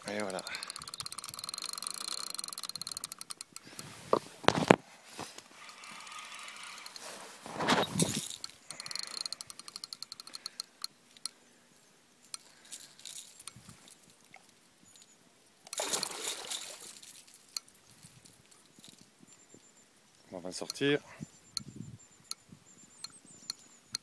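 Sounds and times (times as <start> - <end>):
fishing reel ticking rapidly: 0.0 - 3.8, 5.6 - 7.2, 8.2 - 11.4, 15.7 - 16.8
fish splashing at surface: 15.8 - 16.9.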